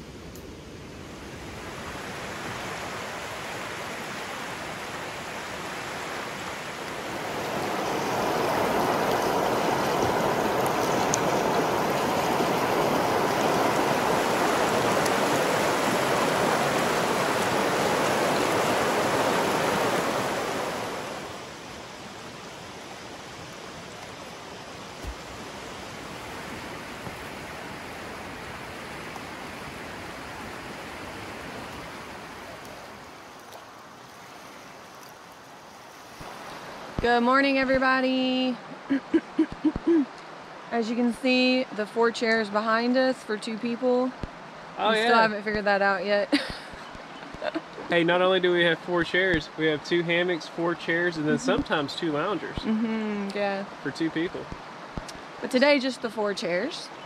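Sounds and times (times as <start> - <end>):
creek water flowing: 0.0 - 57.0.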